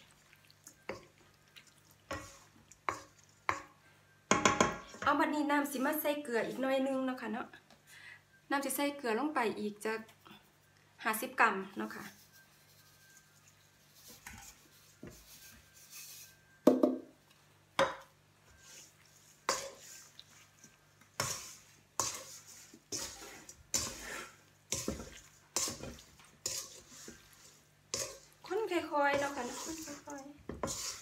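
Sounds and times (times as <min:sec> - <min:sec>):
wooden spatula knocking metal bowl: 0:04.3 - 0:05.1, 0:17.8 - 0:18.1.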